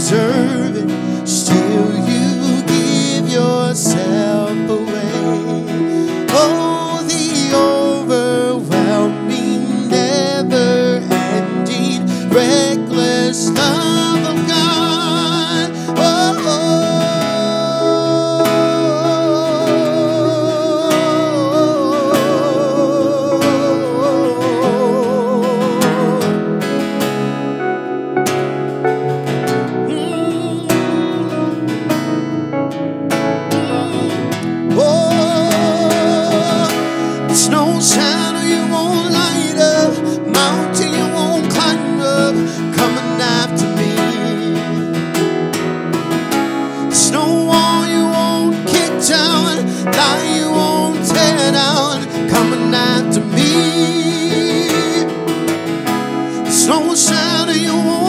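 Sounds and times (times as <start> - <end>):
acoustic guitar strums: 0.0 - 58.0
person singing: 0.0 - 58.0
sustained keyboard chords: 0.0 - 58.0
person singing long vibrato note: 29.7 - 32.2, 33.4 - 42.8.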